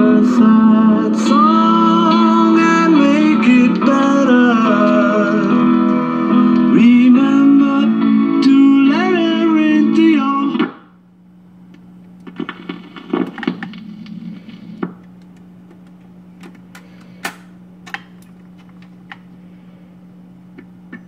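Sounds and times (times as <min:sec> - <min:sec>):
music from record player: 0:00.0 - 0:11.0, 0:12.2 - 0:15.0
steady low hum: 0:00.0 - 0:21.0
record changer clunking and rattling: 0:11.7 - 0:19.3, 0:20.5 - 0:21.0.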